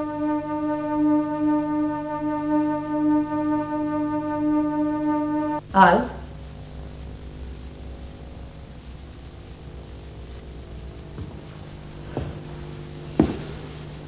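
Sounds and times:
steady low hum: 0.0 - 14.0
soft knocks: 11.2 - 14.0.

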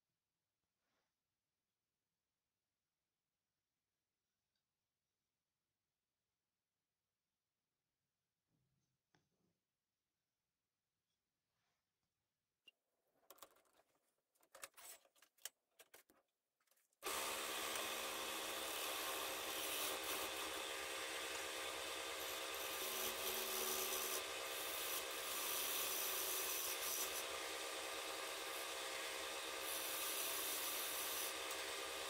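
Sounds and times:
lathe motor hum: 17.0 - 32.0.

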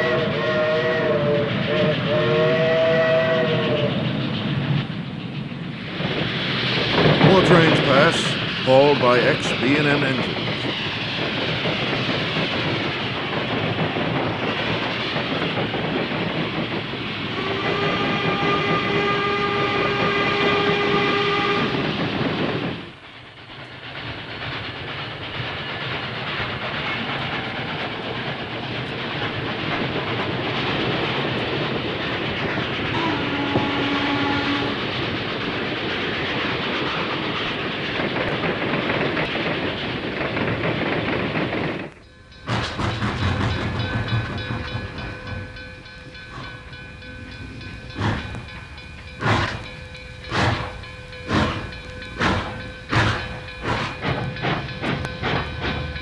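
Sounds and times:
steam whistle blast: 0.0 - 3.9, 17.4 - 21.8, 33.0 - 34.8
train wheels clattering: 0.0 - 56.0.

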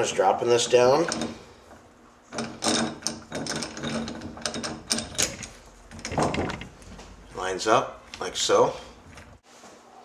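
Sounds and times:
metal gear parts clicking and rattling: 2.4 - 6.8.

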